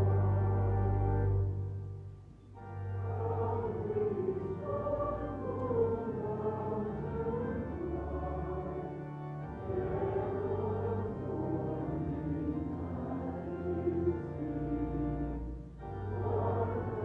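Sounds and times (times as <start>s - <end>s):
congregation singing a hymn: 0.0s - 1.6s, 2.6s - 17.0s
organ accompaniment: 0.0s - 17.0s.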